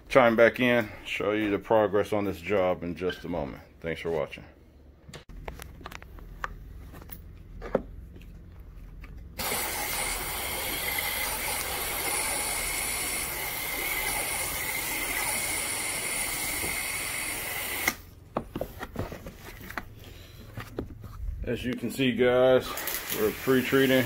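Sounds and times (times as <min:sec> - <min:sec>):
sprayer hissing: 0:09.4 - 0:18.0, 0:22.6 - 0:24.0.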